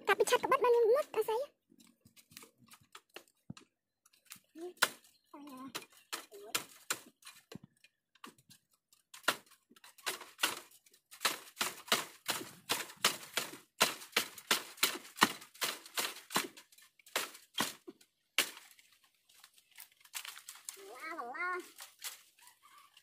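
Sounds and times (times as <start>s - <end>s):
dry twigs crackling and snapping: 0.1s - 23.0s.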